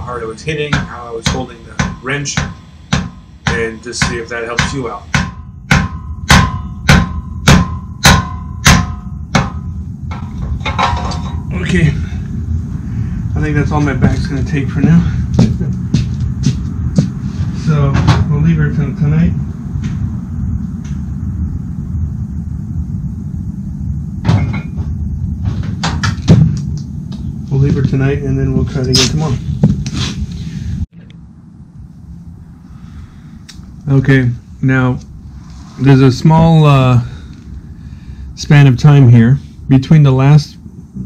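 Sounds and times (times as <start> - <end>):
steady low rumble: 0.0 - 41.0
hammer striking metal wrench: 0.7 - 11.4.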